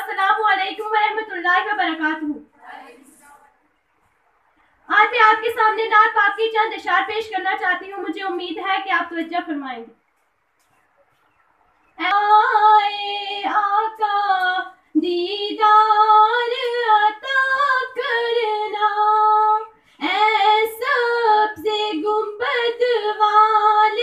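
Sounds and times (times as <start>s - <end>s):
girls singing unaccompanied: 2.6s - 3.6s, 12.0s - 24.0s.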